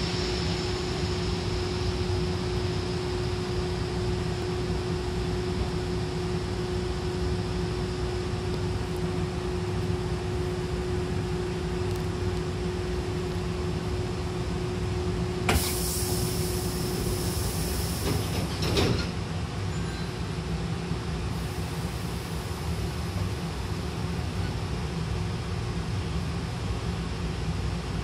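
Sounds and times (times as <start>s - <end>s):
hiss of air from train doors: 0.0s - 4.9s, 15.4s - 19.2s, 21.2s - 24.6s
hum of stopped train: 0.0s - 28.0s
train doors shutting with clatter: 15.4s - 20.3s.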